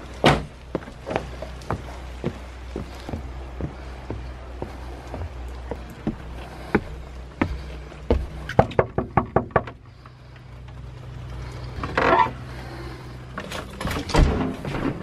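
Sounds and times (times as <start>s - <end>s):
footsteps on wooden boards: 0.1s - 10.1s.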